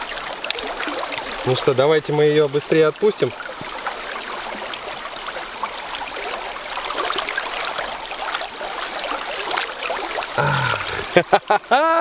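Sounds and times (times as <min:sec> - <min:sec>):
river water rushing: 0:02.7 - 0:12.0.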